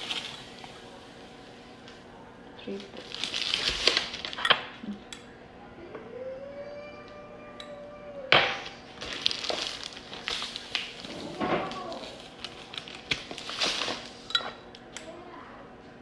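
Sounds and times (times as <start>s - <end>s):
plastic bag crinkling: 2.7s - 4.4s, 8.6s - 14.3s.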